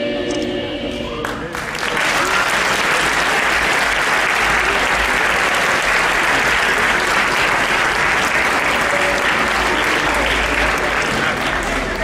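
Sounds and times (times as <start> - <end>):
audience applauding: 1.2 - 12.0.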